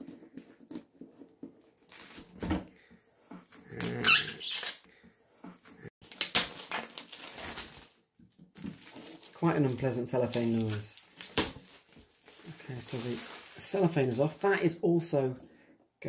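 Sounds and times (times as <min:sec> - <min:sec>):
plastic film crinkling and squeaking: 0:00.0 - 0:02.4, 0:03.6 - 0:04.8, 0:05.8 - 0:14.8.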